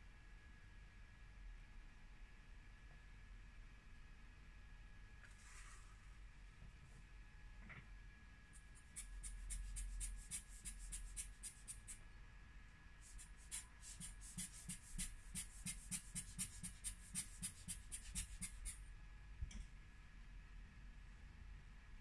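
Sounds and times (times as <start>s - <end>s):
rubbing on glass screen protector: 8.8s - 12.0s, 13.1s - 18.8s.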